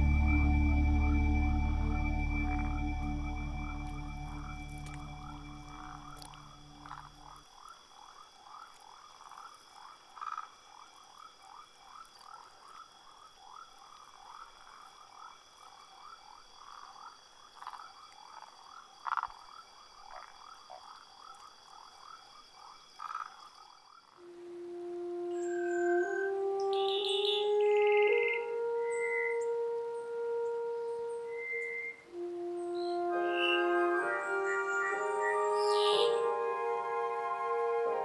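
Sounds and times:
steady high whine: 0:00.0 - 0:07.2
frogs calling: 0:00.1 - 0:38.0.

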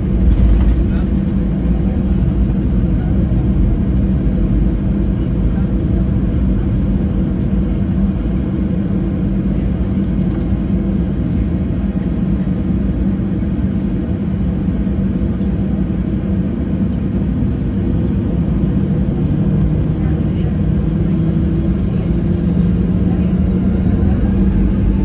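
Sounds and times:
jet engines idling rumble: 0:00.0 - 0:25.0.

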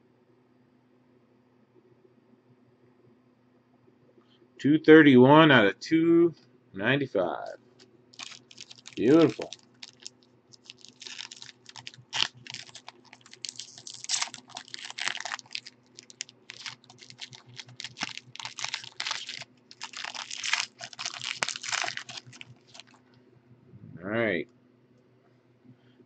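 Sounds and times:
faint steady hum: 0:00.0 - 0:26.0
foil wrapper tearing and crinkling: 0:08.2 - 0:23.0.

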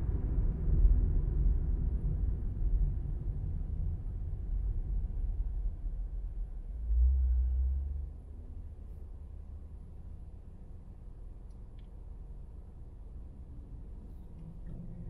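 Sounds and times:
engine idle hum: 0:00.0 - 0:15.0
road and engine rumble inside car: 0:00.0 - 0:15.0.

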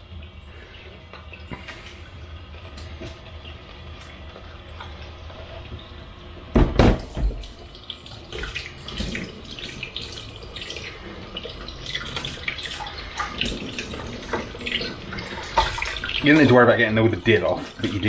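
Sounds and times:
tap water running into sink: 0:00.6 - 0:18.0
loud knock and splash: 0:06.5 - 0:07.4.

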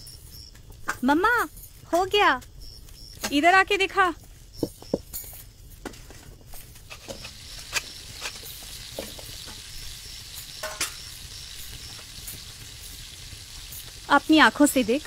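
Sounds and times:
food sizzling in a pan: 0:04.4 - 0:15.0.

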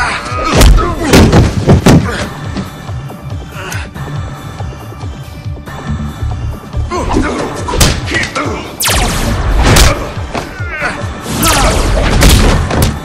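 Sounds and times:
driving background music: 0:00.0 - 0:13.0
punch and kick impacts: 0:11.6 - 0:13.0.

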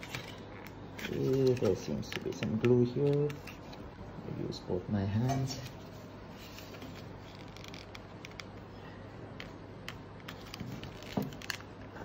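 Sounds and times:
paper label scratching and peeling: 0:06.4 - 0:08.6.

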